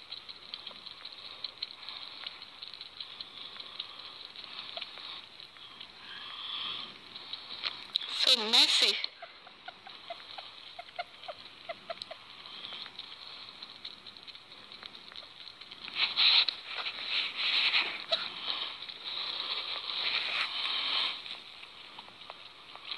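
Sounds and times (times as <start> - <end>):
small animals chewing and licking: 0.0 - 22.9
scratchy rustling: 15.3 - 22.9.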